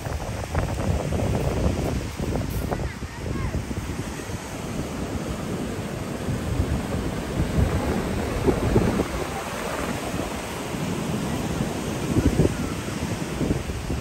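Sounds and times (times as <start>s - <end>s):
ocean surf: 0.0s - 14.0s
wind buffeting microphone: 0.0s - 14.0s.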